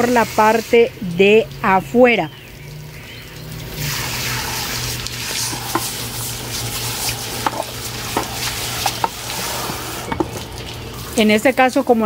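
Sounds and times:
hose spray hissing on clay pots: 0.0s - 1.5s, 3.7s - 10.3s
small water splashes: 0.7s - 12.0s.

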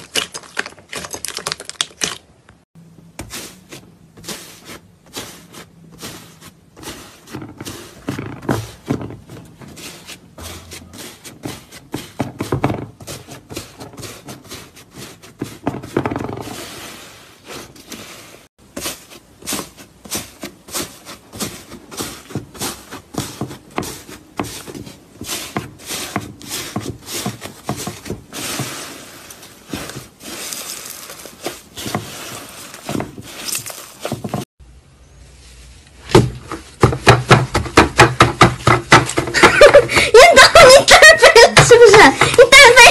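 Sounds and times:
crunchy slime crackling: 0.0s - 2.6s, 28.4s - 34.2s.

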